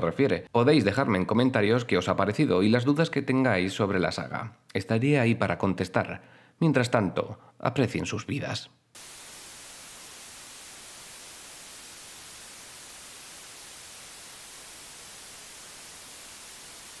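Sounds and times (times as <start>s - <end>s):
television static hiss: 9.0s - 17.0s.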